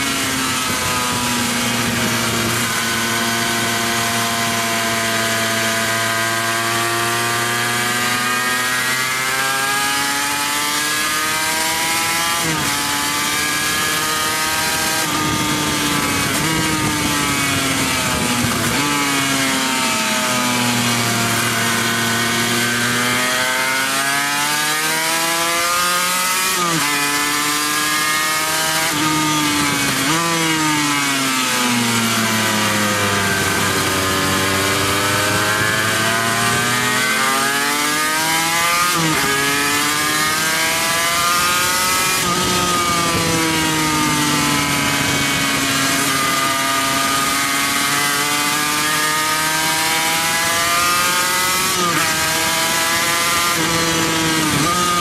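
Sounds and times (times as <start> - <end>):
racing motorcycle engine: 0.0 - 55.0.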